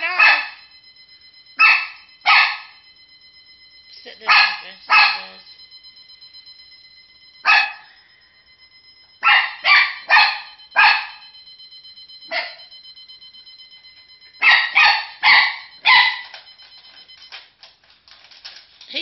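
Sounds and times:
dog barking: 0:00.0 - 0:00.6, 0:01.6 - 0:02.7, 0:04.2 - 0:05.4, 0:07.4 - 0:07.8, 0:09.2 - 0:11.2, 0:12.3 - 0:12.7, 0:14.4 - 0:16.3
alarm clock beeping: 0:00.0 - 0:19.0.

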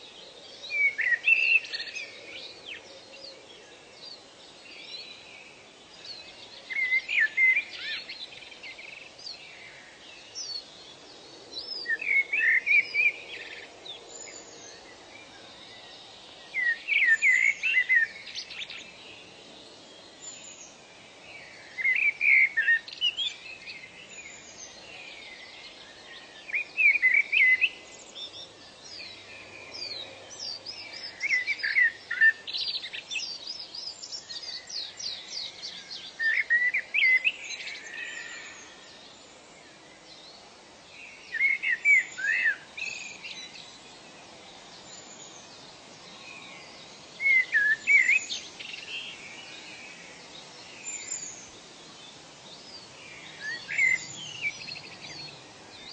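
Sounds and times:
faint background hiss: 0:00.0 - 0:55.9
faint higher bird calls: 0:41.0 - 0:43.8, 0:44.8 - 0:51.6.

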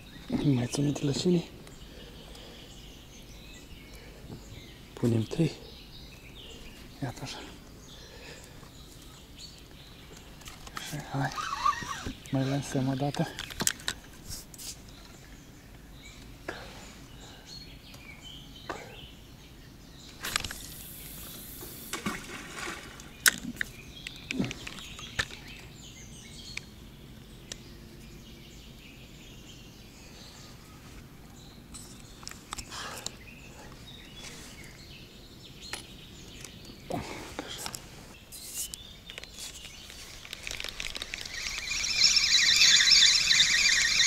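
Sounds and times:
reel clicking: 0:39.2 - 0:44.0
fishing line whooshing off reel: 0:40.7 - 0:44.0.

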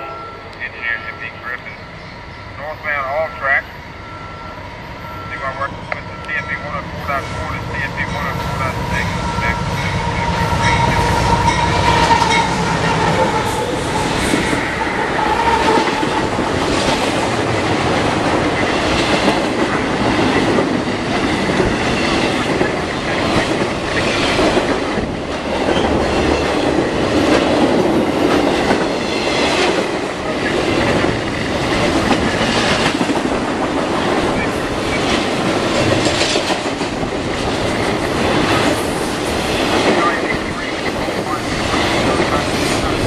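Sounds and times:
freight train passing: 0:00.0 - 0:43.0
wheels clickety-clack over rails: 0:10.1 - 0:43.0.

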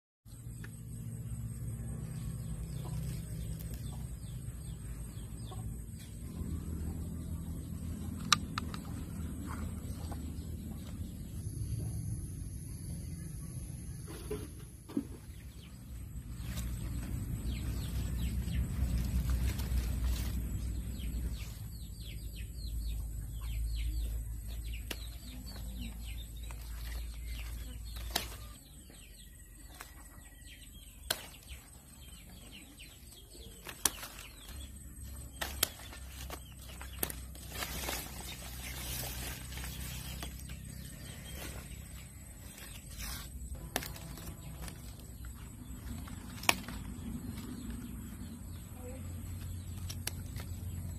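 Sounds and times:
birds chirping: 0:00.3 - 0:50.9
rustling leaves: 0:15.4 - 0:50.9
pruning shears snipping: 0:26.4 - 0:28.6, 0:31.0 - 0:31.9, 0:35.2 - 0:40.5, 0:42.5 - 0:45.1, 0:45.8 - 0:47.5, 0:49.6 - 0:50.9.

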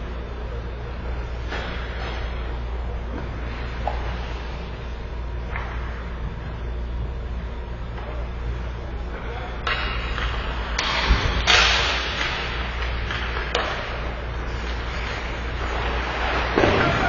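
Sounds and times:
hockey sticks and puck cracking: 0:09.6 - 0:17.0
skates scraping ice: 0:11.6 - 0:17.0.

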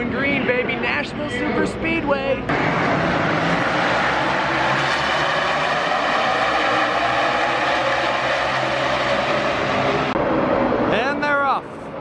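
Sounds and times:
race car engines at full throttle: 0:00.0 - 0:12.0.

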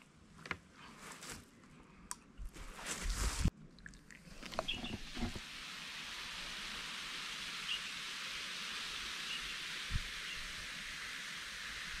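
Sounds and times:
fizzing hiss of bubbling foam: 0:04.0 - 0:12.0
faint bird chirps: 0:04.5 - 0:05.1, 0:07.6 - 0:08.1, 0:08.9 - 0:10.8.

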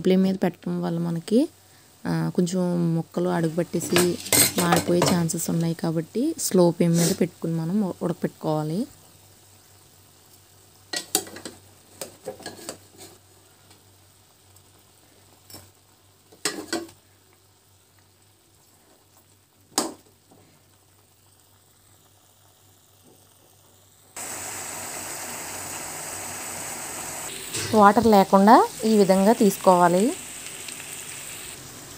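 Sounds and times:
chicken sizzling in oil: 0:01.2 - 0:31.9.

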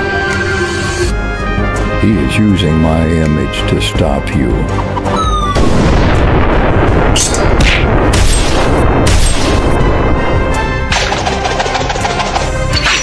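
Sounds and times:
background music: 0:00.0 - 0:13.0
explosion blast: 0:05.6 - 0:10.9.

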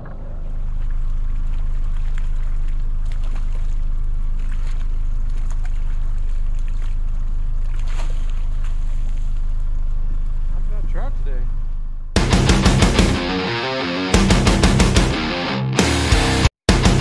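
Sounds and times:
fish splashing at surface: 0:00.0 - 0:09.4.

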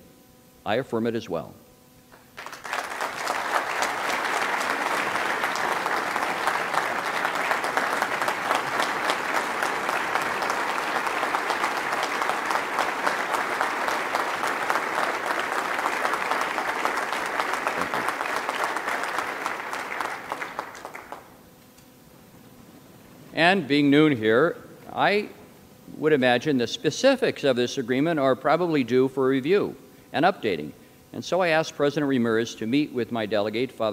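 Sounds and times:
audience applauding: 0:02.4 - 0:21.4.

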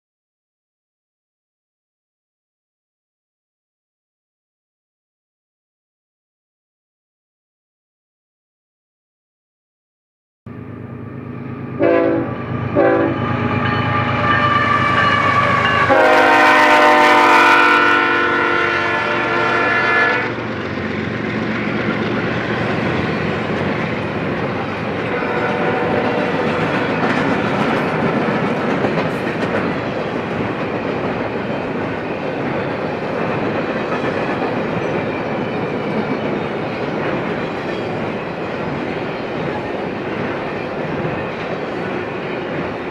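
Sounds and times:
locomotive rumble: 0:10.5 - 0:42.9
locomotive horn blasts: 0:11.8 - 0:20.4, 0:25.0 - 0:26.6
train wheels clattering on rails: 0:20.3 - 0:42.9.

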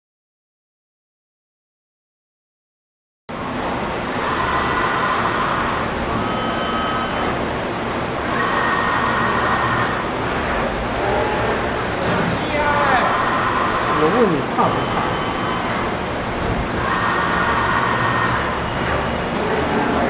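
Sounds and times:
factory rumble: 0:03.3 - 0:20.0
electric drives whirring: 0:03.4 - 0:11.9, 0:12.6 - 0:19.2.

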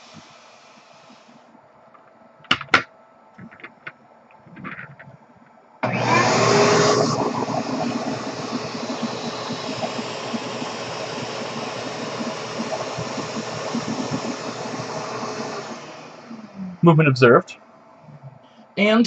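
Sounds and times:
vacuum cleaner running: 0:00.0 - 0:01.4, 0:05.8 - 0:17.0.

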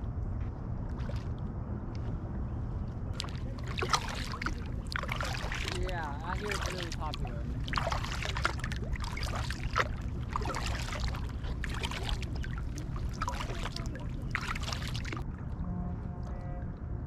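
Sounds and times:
steady low rumble: 0:00.0 - 0:17.0
paddle strokes splashing in water: 0:03.1 - 0:15.3.

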